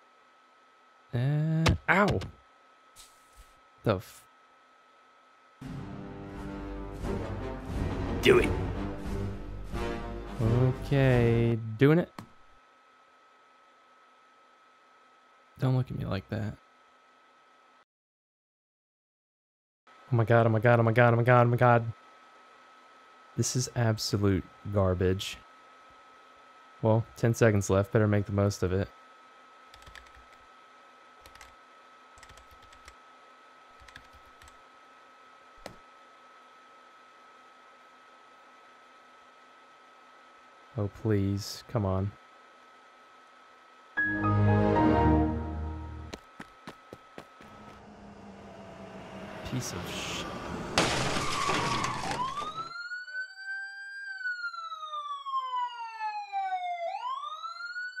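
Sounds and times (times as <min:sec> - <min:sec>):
faint steady hum: 0:00.0 - 0:17.8, 0:19.9 - 0:53.4
computer keyboard typing: 0:29.7 - 0:30.4, 0:31.2 - 0:31.6, 0:32.2 - 0:33.0, 0:33.8 - 0:34.6
noisy rush: 0:47.3 - 0:52.4
police siren wailing: 0:47.5 - 0:58.0.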